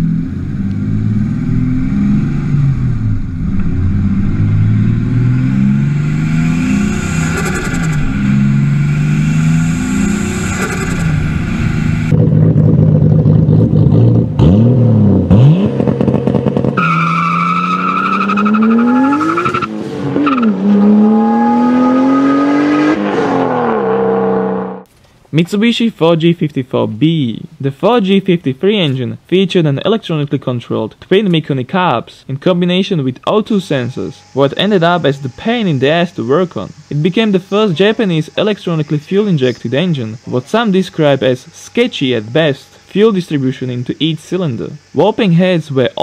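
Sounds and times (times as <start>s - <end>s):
car accelerating through gears: 0.0s - 24.9s
car engine revving: 0.0s - 24.9s.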